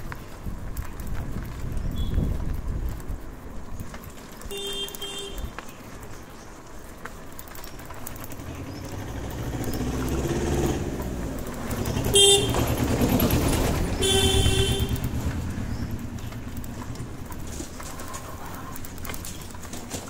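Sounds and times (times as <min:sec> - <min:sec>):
car horn honking: 0:04.5 - 0:05.5, 0:12.0 - 0:12.8, 0:14.0 - 0:15.2
vehicle engine rumble passing: 0:07.8 - 0:20.0.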